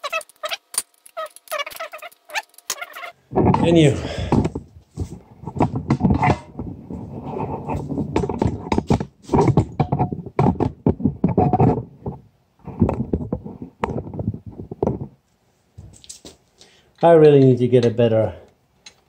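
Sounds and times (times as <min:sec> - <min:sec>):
phone handling bumps and rubbing: 0:00.0 - 0:15.2.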